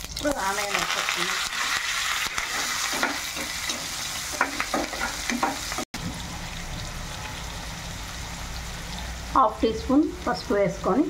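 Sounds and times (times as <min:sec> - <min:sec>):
onions sizzling in oil: 0:00.0 - 0:11.0
spatula scraping a pan: 0:01.7 - 0:05.8.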